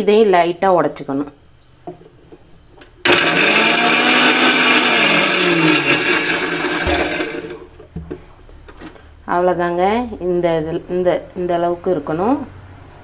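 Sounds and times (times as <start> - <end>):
mixer grinder running: 3.0 - 7.8.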